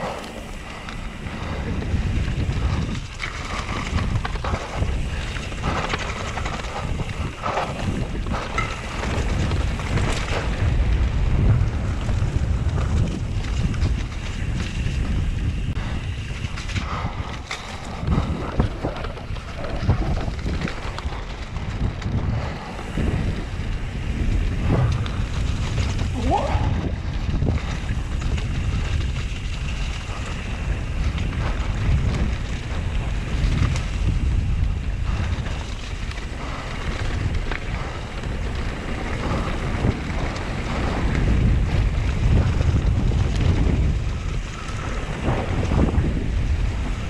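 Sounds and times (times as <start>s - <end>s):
bike knocking and rattling: 0.0s - 47.0s
bike tyres rumbling on dirt: 0.0s - 47.0s
wind buffeting microphone: 0.0s - 47.0s.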